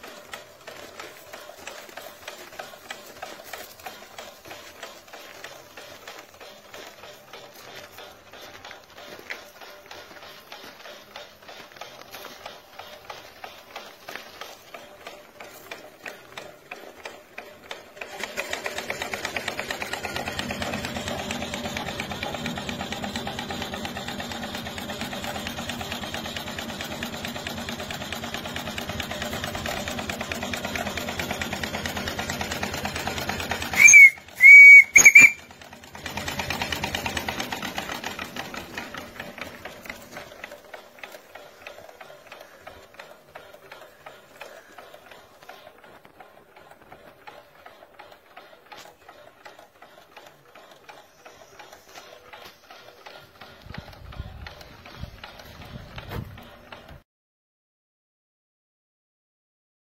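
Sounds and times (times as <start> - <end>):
steam engine running: 0.0 - 57.0
steam whistle blasts: 33.8 - 35.4.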